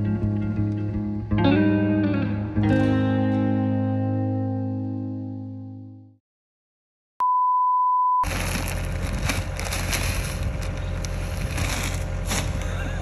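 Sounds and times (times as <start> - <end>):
feed bag handling: 8.2 - 12.9
crunching in snow: 8.2 - 13.0
low rumble: 8.3 - 13.0.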